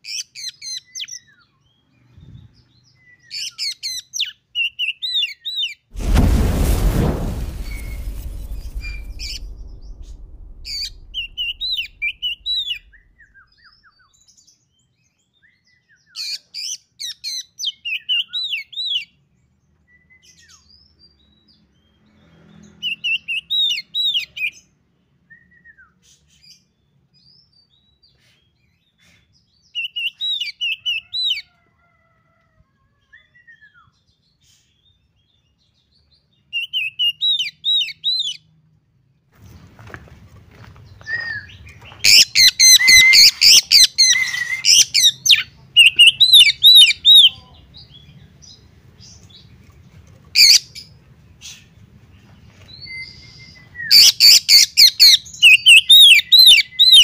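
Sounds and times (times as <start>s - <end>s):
low rumble: 6.0s - 13.3s.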